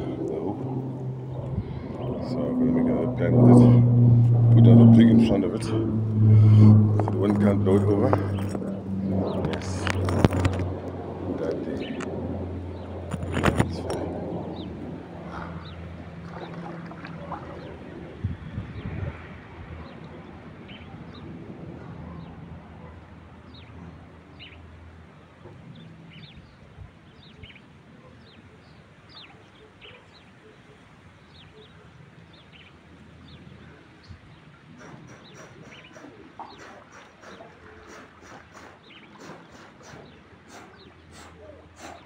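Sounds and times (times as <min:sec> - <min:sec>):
water splashing: 0:00.0 - 0:18.5
low rumble: 0:00.0 - 0:19.8.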